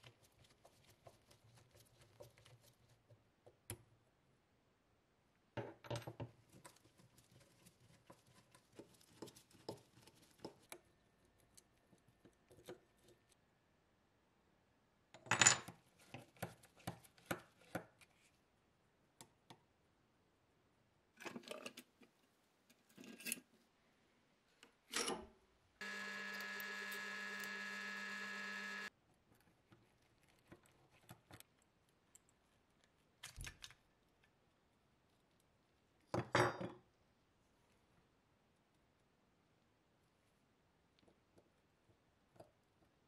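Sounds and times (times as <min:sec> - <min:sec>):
drill press drilling metal: 0:25.8 - 0:28.9.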